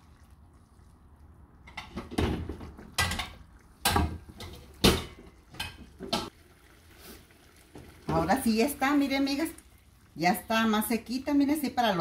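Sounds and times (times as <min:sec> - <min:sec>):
frying pan clattering on stove: 0:01.7 - 0:06.3.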